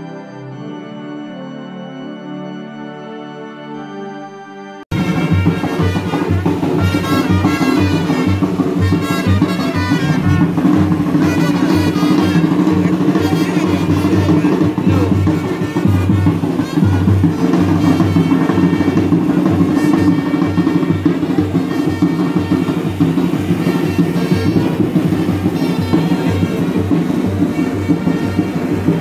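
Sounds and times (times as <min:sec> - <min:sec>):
music with drum beat and bass: 0:04.9 - 0:29.0.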